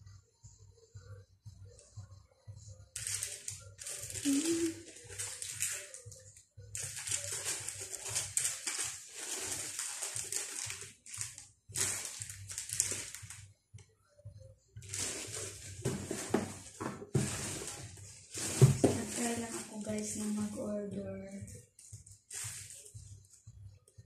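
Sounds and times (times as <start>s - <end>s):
plastic and paper bags rustling: 3.0s - 6.1s, 6.8s - 13.4s, 14.8s - 20.6s, 22.2s - 23.0s.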